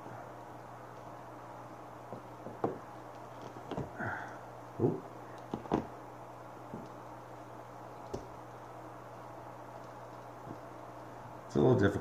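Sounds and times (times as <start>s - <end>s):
steady low hum: 0.0s - 12.0s
plastic fittings knocking on glass: 2.1s - 2.8s.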